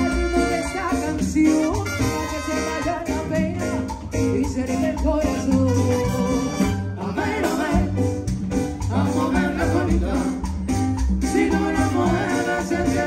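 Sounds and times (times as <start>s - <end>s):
woman singing: 0.0s - 6.4s
latin dance band music: 0.0s - 13.0s.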